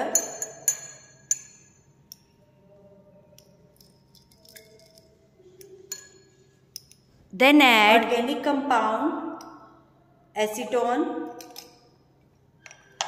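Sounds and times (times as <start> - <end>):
glassware clinking: 0.0 - 2.4, 3.4 - 7.2.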